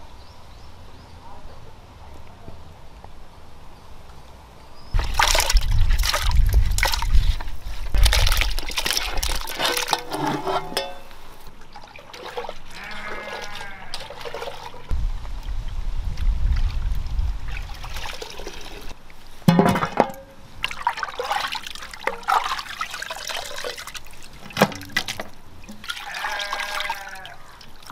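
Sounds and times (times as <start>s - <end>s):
water pouring and splashing: 5.0s - 27.9s
animal bleating: 12.7s - 14.1s, 26.0s - 27.6s.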